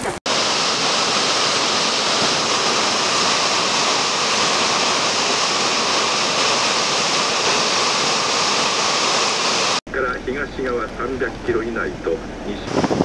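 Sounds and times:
water rushing over a weir: 0.0s - 9.8s.

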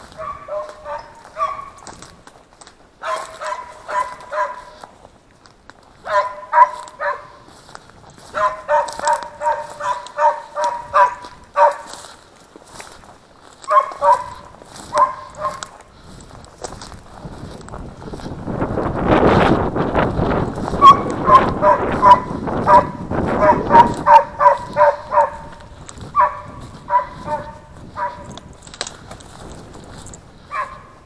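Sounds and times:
dog barking: 0.0s - 2.0s, 3.0s - 4.8s, 6.0s - 7.5s, 8.2s - 12.1s, 13.6s - 15.8s, 20.6s - 28.4s, 30.5s - 31.0s.

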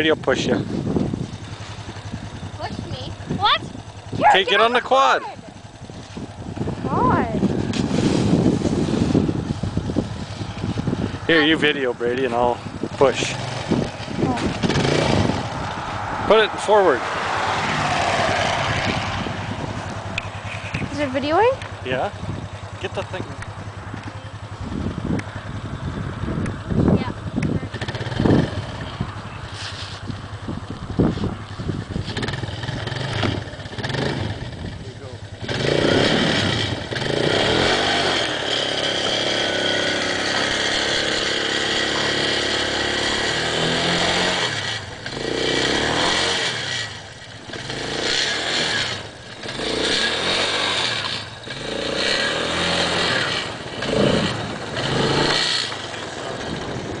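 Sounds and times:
quad engine revving: 0.0s - 30.4s, 31.0s - 57.0s
wheels spinning in snow: 0.3s - 15.7s, 25.4s - 57.0s.

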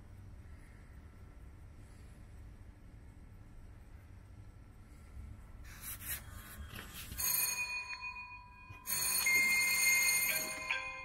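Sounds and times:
high ringing tone: 6.9s - 11.0s.

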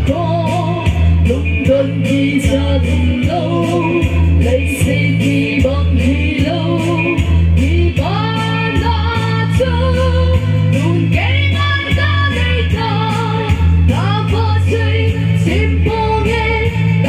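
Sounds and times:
instrumental accompaniment with beat: 0.0s - 17.0s
woman singing into microphone: 0.0s - 17.0s.

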